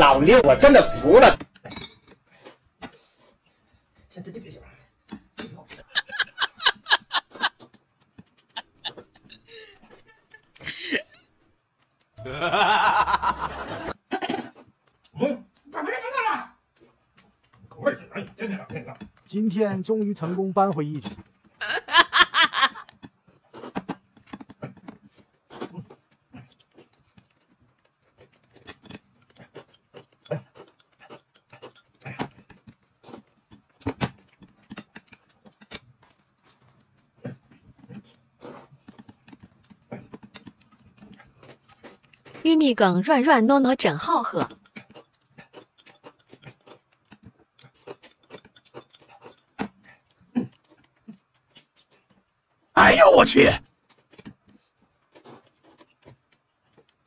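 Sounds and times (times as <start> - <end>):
people slurping and chewing: 0.0 - 15.7, 16.6 - 43.0, 43.7 - 57.0
chopsticks and spoon clinking: 1.7 - 2.2.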